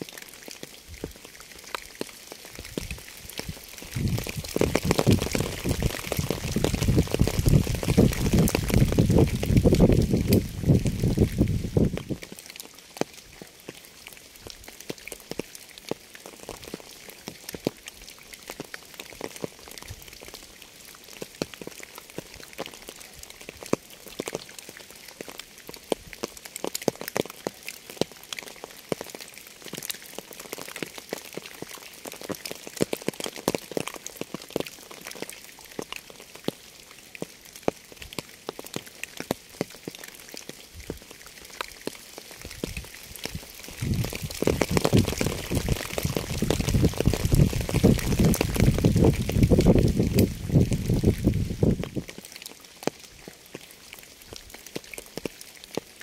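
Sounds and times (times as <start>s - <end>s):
rain patter: 0.0s - 56.0s.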